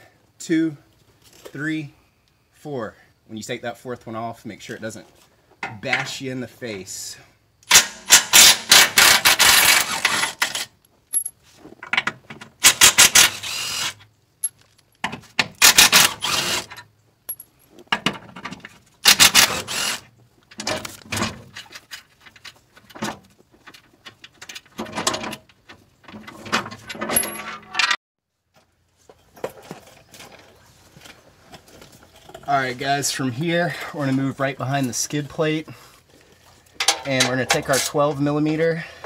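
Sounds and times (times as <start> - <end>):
impact wrench bursts: 7.6 - 10.7, 12.6 - 14.0, 15.6 - 16.8, 19.0 - 20.1
metal clinks and rattles: 10.4 - 12.0, 17.2 - 18.8, 21.4 - 28.0.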